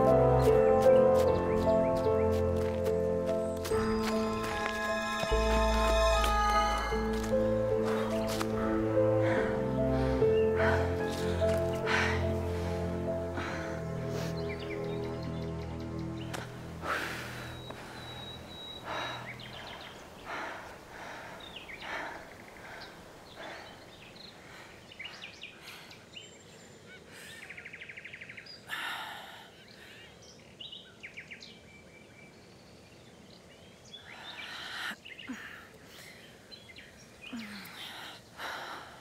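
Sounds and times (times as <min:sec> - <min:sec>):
birds calling: 0:00.0 - 0:38.9
woman breathing hard: 0:06.9 - 0:14.5, 0:16.8 - 0:26.0, 0:37.4 - 0:39.0.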